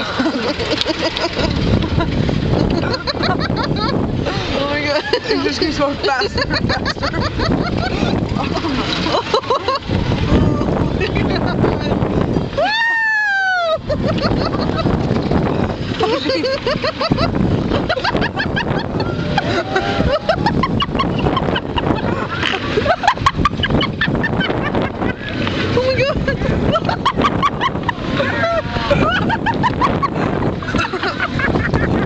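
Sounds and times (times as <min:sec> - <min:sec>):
people laughing and shrieking: 0:00.0 - 0:32.0
ride low rumble: 0:00.0 - 0:32.0
wind rushing over microphone: 0:00.0 - 0:32.0.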